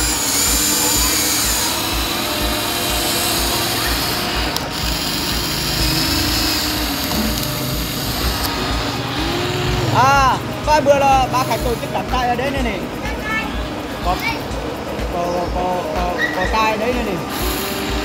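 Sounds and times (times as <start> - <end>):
toy excavator motors whining: 0.0 - 12.2, 17.2 - 18.0.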